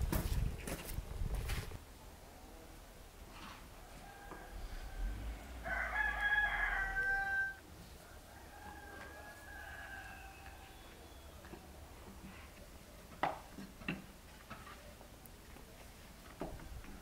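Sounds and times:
rooster crowing: 3.8s - 11.3s
distant rooster crows: 3.8s - 11.4s.

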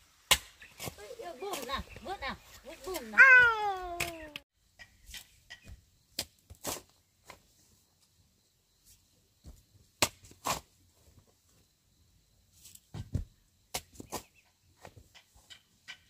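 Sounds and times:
shovel digging into soil: 5.0s - 7.0s, 10.0s - 10.7s.

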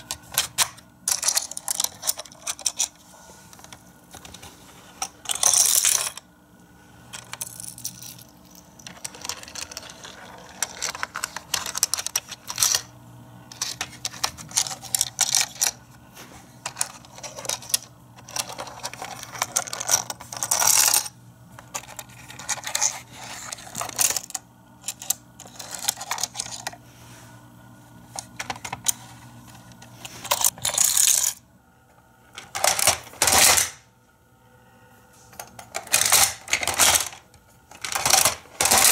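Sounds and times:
plastic toy pieces clattering: 0.0s - 3.0s, 5.0s - 6.2s, 7.1s - 12.9s, 13.5s - 15.8s, 16.6s - 26.8s, 30.0s - 31.4s, 32.4s - 33.8s, 35.4s - 38.9s.

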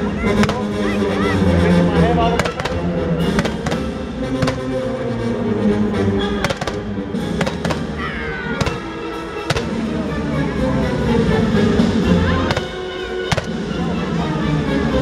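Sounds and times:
loud music: 0.0s - 15.0s
fireworks bangs with crackle: 3.4s - 4.8s, 6.4s - 7.9s, 8.6s - 9.8s, 12.5s - 13.7s.

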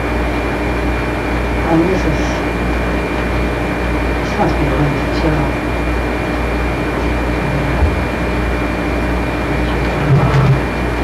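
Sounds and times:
low murmur: 4.2s - 10.9s.

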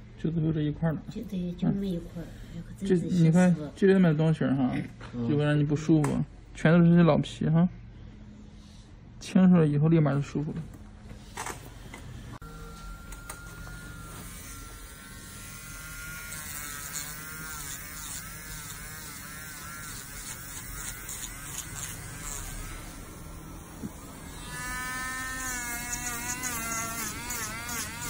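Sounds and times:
electric nail drill whining: 12.5s - 28.0s.

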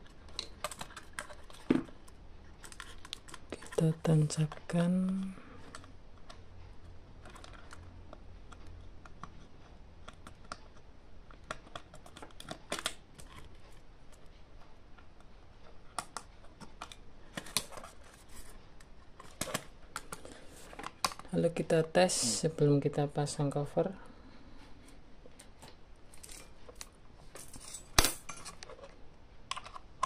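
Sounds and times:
wire connectors clicking and scraping: 0.0s - 6.4s, 7.2s - 14.3s, 24.8s - 30.0s.

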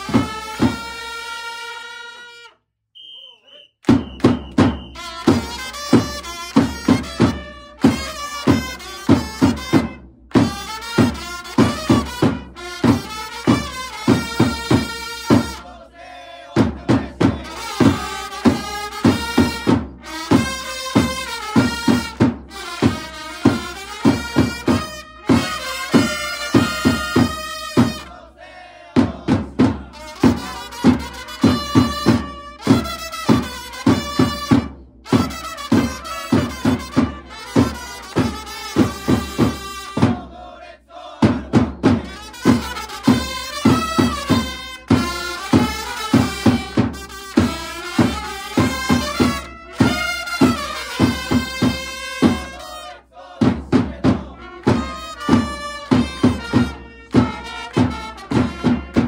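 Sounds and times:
crowd chanting: 0.0s - 2.4s, 4.2s - 9.8s, 10.6s - 34.6s, 35.2s - 59.0s
trumpets playing melody: 0.0s - 3.1s, 4.0s - 15.7s, 17.4s - 28.2s, 29.9s - 40.2s, 42.0s - 53.1s, 54.3s - 59.0s
people clapping: 3.8s - 5.4s, 7.7s - 8.6s
bass drum beating: 3.9s - 13.0s, 53.4s - 59.0s.

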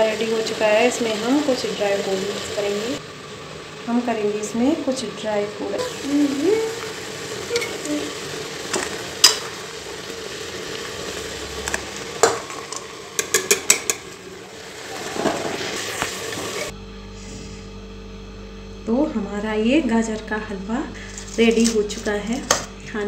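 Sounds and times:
frying sizzle: 0.0s - 16.7s, 21.0s - 22.7s
ladle scraping metal pot: 7.4s - 8.1s, 11.7s - 16.7s
ladle clinking on pot: 13.2s - 14.2s.

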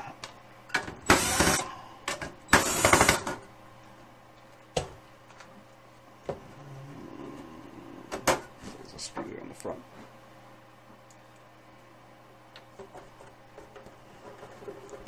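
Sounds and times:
cordless drill bursts: 1.0s - 1.7s, 2.5s - 3.4s.

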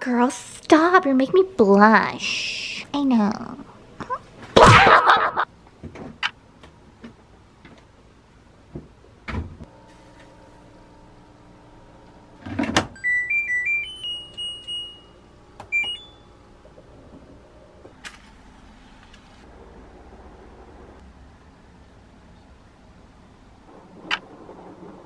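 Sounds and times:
washing machine beeping: 12.7s - 17.2s.

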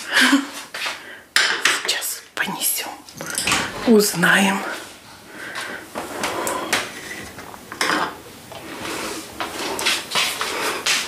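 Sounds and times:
dishes and cutlery clattering: 3.2s - 3.8s, 7.2s - 8.2s.

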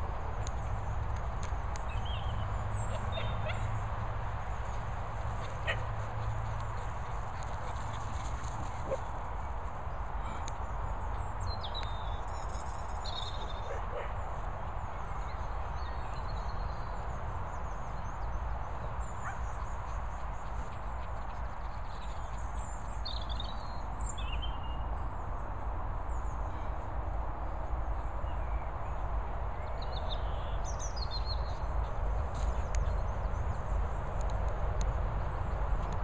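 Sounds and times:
birds chirping: 0.1s - 25.0s.

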